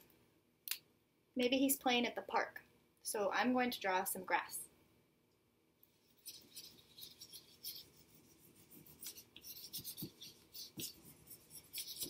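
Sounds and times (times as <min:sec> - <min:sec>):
marker scratching on paper: 0:06.0 - 0:12.0.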